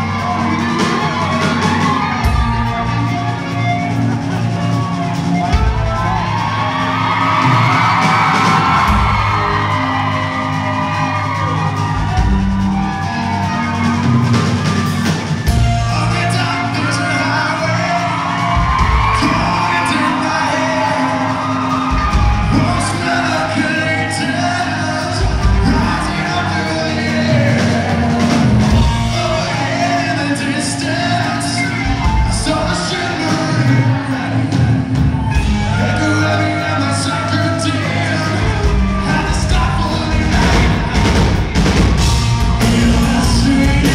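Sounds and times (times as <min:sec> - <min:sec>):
electric guitar: 0:00.0 - 0:43.9
live rock band playing: 0:00.0 - 0:43.9
male singer: 0:15.6 - 0:41.5, 0:42.2 - 0:43.9.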